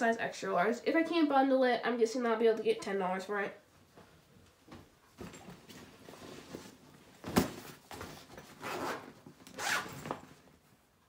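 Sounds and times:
fabric and packaging rustling: 0:04.7 - 0:10.7.

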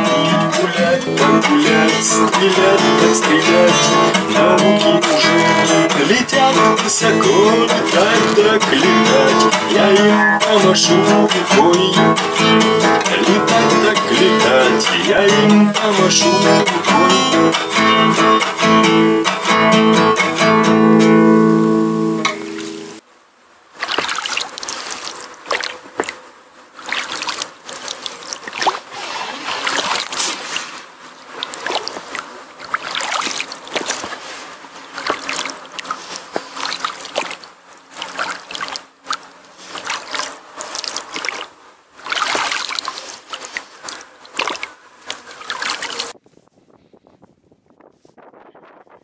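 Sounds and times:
oar strokes splashing: 0:00.0 - 0:15.2, 0:22.3 - 0:23.0, 0:23.7 - 0:46.2
water slapping against boat hull: 0:23.8 - 0:26.2, 0:26.8 - 0:46.2.

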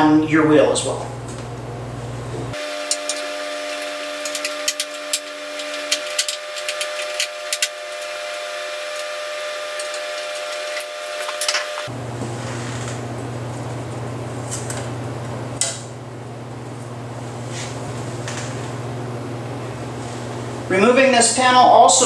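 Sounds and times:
high-pitched whistling hum: 0:02.3 - 0:12.6.

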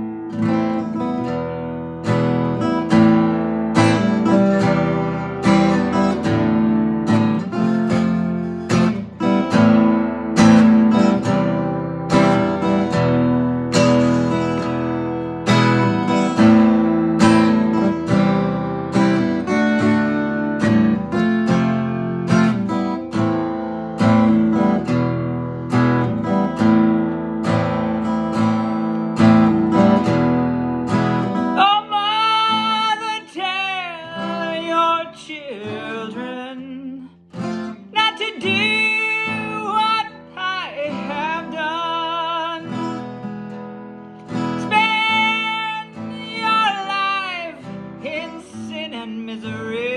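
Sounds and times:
acoustic guitar chords: 0:00.0 - 0:49.9
man singing with vibrato: 0:31.6 - 0:37.2, 0:38.0 - 0:42.9, 0:44.6 - 0:49.9.

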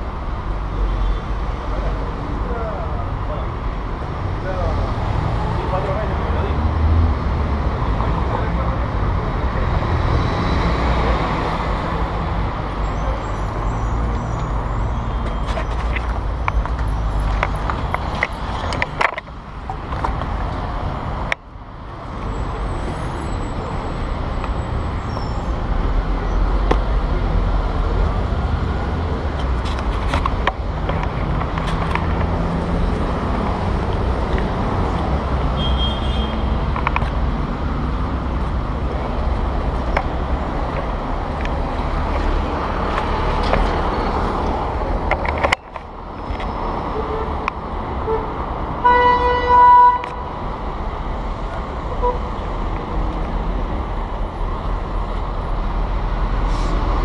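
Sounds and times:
road traffic rumble: 0:00.0 - 0:57.0.

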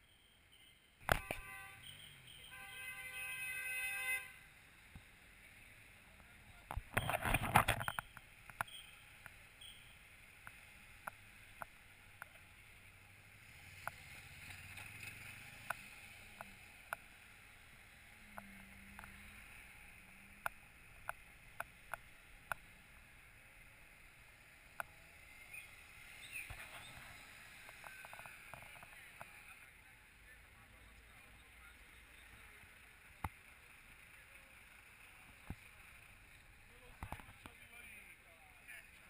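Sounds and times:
muffled street traffic: 0:00.0 - 0:39.0
sharp clicks: 0:06.6 - 0:09.4.

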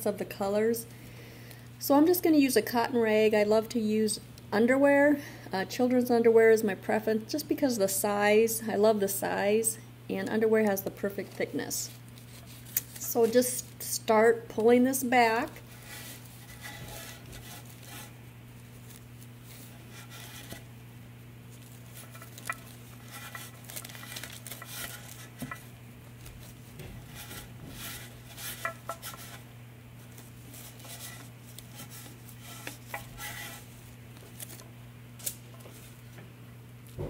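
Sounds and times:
cloth rag rubbing: 0:15.7 - 0:20.7, 0:26.3 - 0:29.4, 0:30.0 - 0:33.8.

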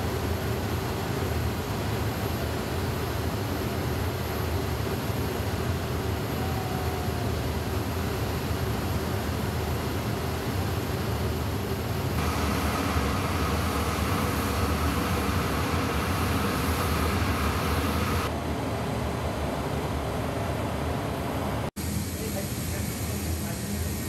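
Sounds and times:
jet aircraft rumble and hiss: 0:00.0 - 0:24.0
jet engine whine: 0:00.0 - 0:24.0.

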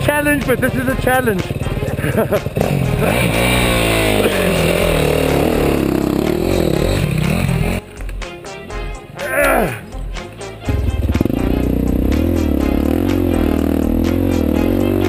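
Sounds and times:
motorcycle engine revving hard: 0:00.0 - 0:07.8, 0:10.9 - 0:15.0.

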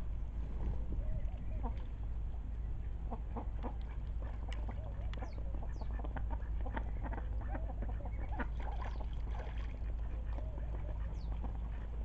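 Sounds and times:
steady low hum: 0:00.0 - 0:12.0
ducks giving soft calls: 0:02.7 - 0:12.0
splashes in shallow water: 0:08.3 - 0:11.3.

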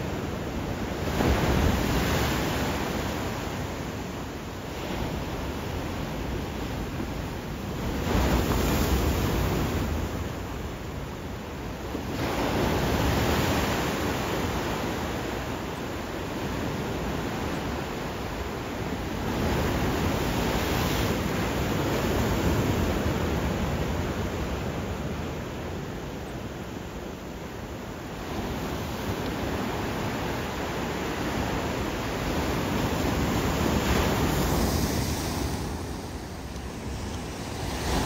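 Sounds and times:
ocean surf washing onto beach: 0:29.1 - 0:38.0.

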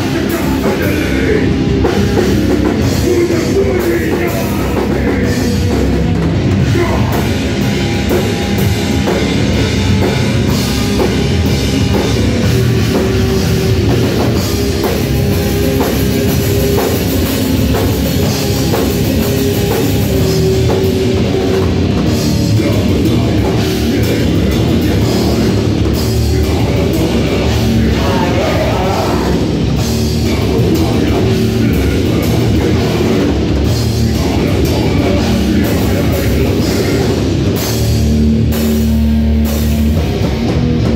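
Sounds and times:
person singing into microphone: 0:00.0 - 0:01.6, 0:02.8 - 0:06.0, 0:22.1 - 0:29.5, 0:30.2 - 0:37.3
amplified guitars: 0:00.0 - 0:40.9
drum kit: 0:00.0 - 0:40.9.

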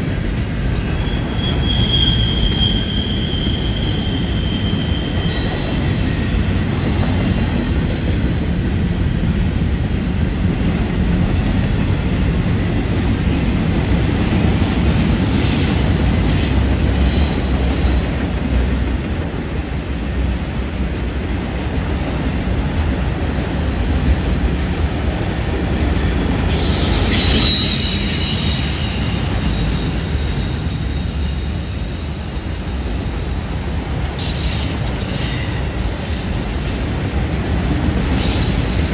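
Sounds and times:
wheel squeal: 0:00.0 - 0:06.6, 0:14.4 - 0:20.0, 0:26.5 - 0:32.7, 0:34.2 - 0:36.5
train wheels rumbling on rail: 0:00.0 - 0:38.9.

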